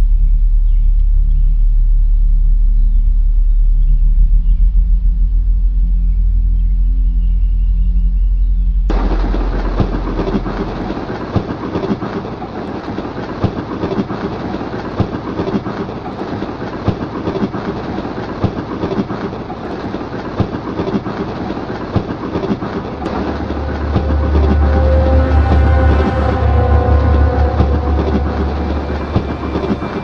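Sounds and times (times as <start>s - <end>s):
train rattling and rumbling: 8.9s - 30.0s
wheels clacking over rail joints: 8.9s - 30.0s.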